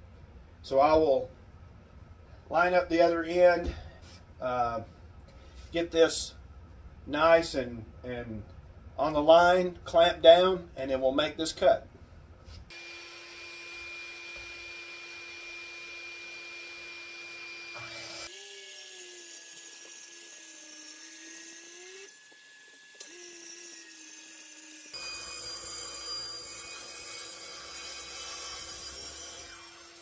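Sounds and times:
circular saw cutting plywood: 12.7s - 30.0s.

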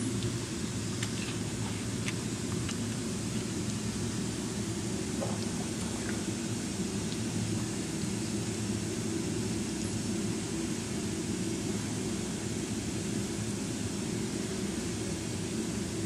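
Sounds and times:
steady low hum with hiss: 0.0s - 16.0s.

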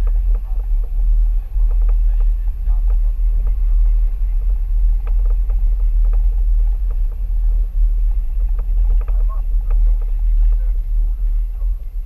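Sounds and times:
vehicle low rumble: 0.0s - 12.0s.

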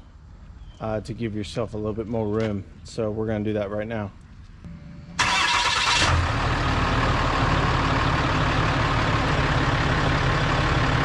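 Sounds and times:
diesel engine idling: 5.1s - 11.0s.

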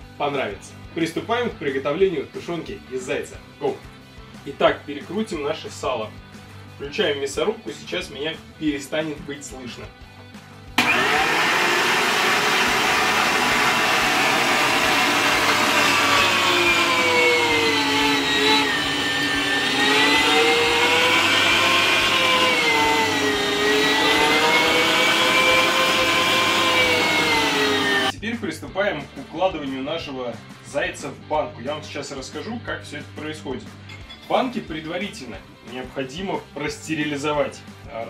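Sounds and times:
electric meat grinder whine: 10.8s - 28.1s.

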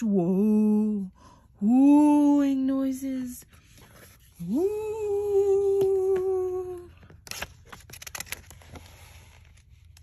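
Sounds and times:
book page turning: 6.9s - 10.0s.

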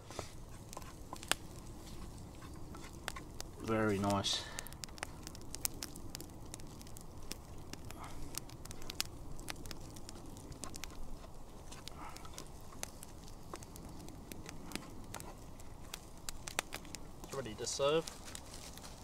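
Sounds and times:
campfire crackling and popping: 0.0s - 19.0s
spatula stirring eggs in pan: 0.1s - 3.4s.

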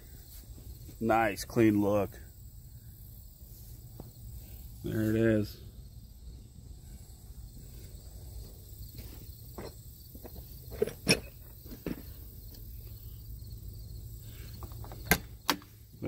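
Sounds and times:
faint steady hum: 0.0s - 16.0s
soft scuffing footsteps: 8.3s - 11.0s.

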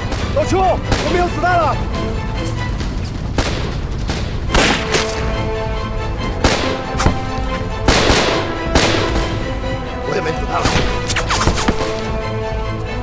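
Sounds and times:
dramatic background music: 0.0s - 13.0s
rifle shots: 7.9s - 9.3s.

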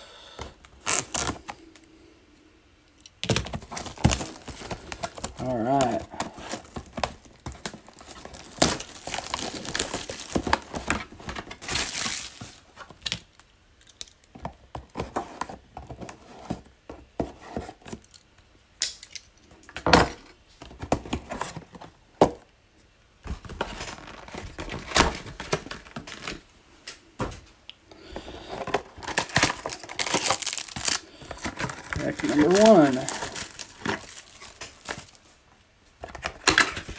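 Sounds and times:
wrapping tearing and crinkling: 0.6s - 1.8s, 3.0s - 14.3s, 23.4s - 26.5s, 28.0s - 36.9s.

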